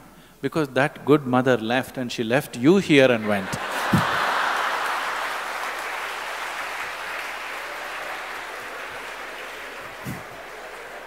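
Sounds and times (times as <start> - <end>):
audience laughing: 3.2 - 5.2, 9.9 - 11.0
audience applauding: 3.5 - 11.0
soft low thump: 3.9 - 4.2.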